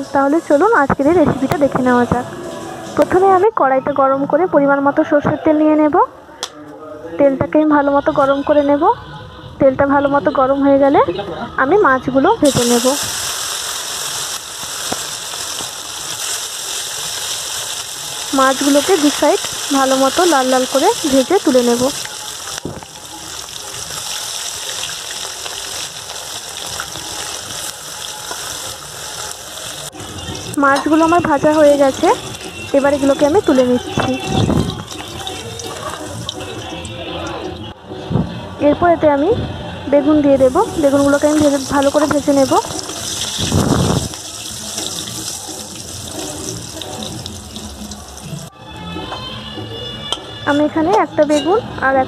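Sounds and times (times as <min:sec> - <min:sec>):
fish sizzling in hot oil: 0:12.4 - 0:37.6, 0:40.4 - 0:48.5.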